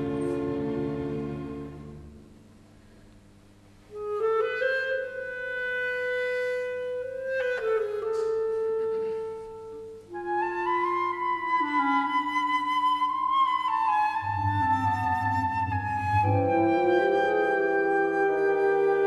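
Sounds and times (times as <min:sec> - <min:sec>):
woodwind slow melody: 0:00.0 - 0:02.6, 0:03.8 - 0:19.0
low sustained woodwind part: 0:00.0 - 0:03.0, 0:03.8 - 0:19.0
flutes playing: 0:03.9 - 0:19.0.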